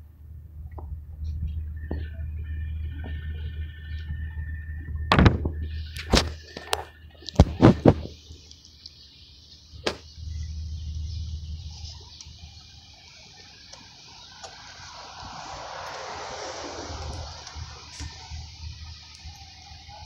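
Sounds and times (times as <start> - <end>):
steady hiss: 5.7 - 20.0.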